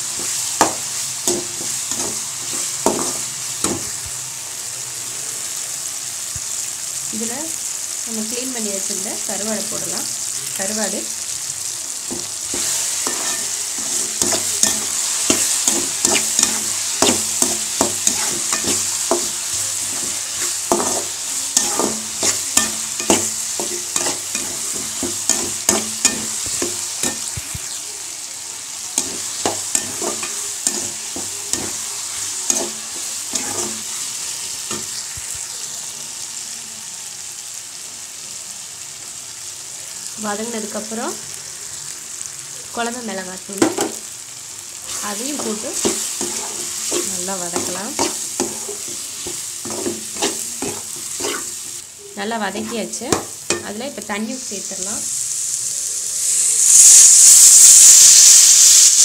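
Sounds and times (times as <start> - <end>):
food sizzling in oil: 0.0 - 59.0
metal spatula scraping pan: 12.2 - 27.3, 29.0 - 34.1, 44.9 - 51.8.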